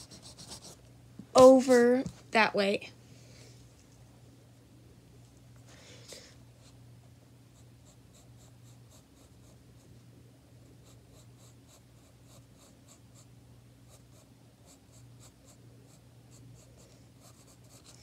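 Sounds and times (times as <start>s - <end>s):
pencil scratching on paper: 0.0s - 0.8s, 7.6s - 9.6s, 10.8s - 13.3s, 13.9s - 18.0s.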